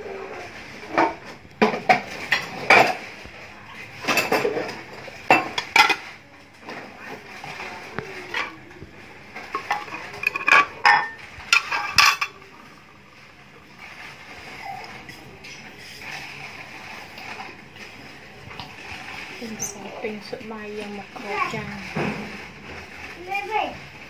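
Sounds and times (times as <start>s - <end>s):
utensils clinking against dishes: 0.1s - 12.9s, 18.6s - 22.8s.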